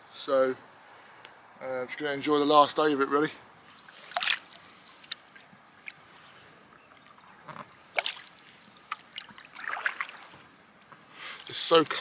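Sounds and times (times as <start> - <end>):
canoe paddle splashing in water: 3.8 - 5.2, 7.9 - 10.5
water dripping from paddle: 3.8 - 6.0, 7.9 - 10.2.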